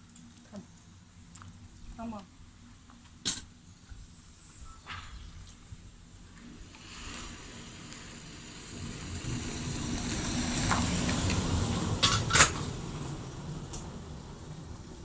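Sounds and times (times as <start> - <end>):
car passing rumble: 6.4 - 15.0.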